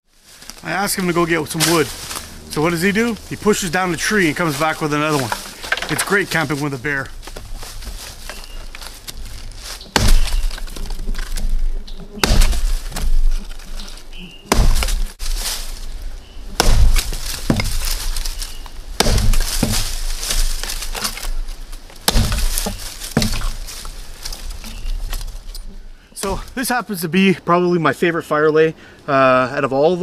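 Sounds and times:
hatchet chopping log: 0:09.9 - 0:11.6, 0:12.2 - 0:13.5, 0:14.5 - 0:15.4, 0:16.5 - 0:21.4, 0:22.0 - 0:24.8.

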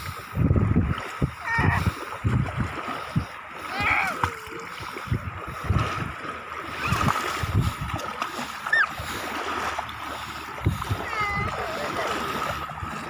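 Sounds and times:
water splashing and sloshing: 0:00.0 - 0:13.0.

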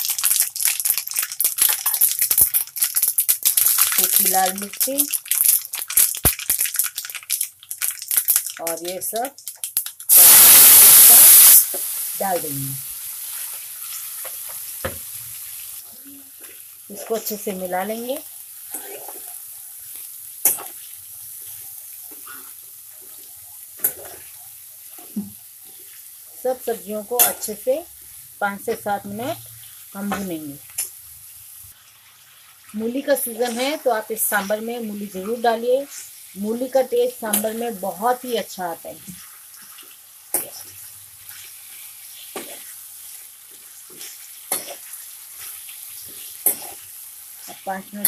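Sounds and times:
vegetables sizzling in oil: 0:00.0 - 0:48.0
metal spoon scraping a pan: 0:18.7 - 0:19.4, 0:43.9 - 0:46.8.

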